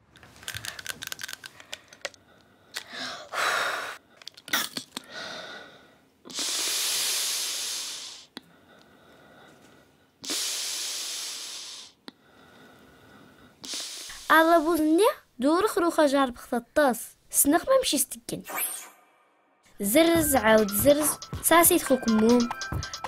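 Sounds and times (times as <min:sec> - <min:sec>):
inhaler rattling when shaken: 0:00.2 - 0:03.0, 0:04.2 - 0:05.1.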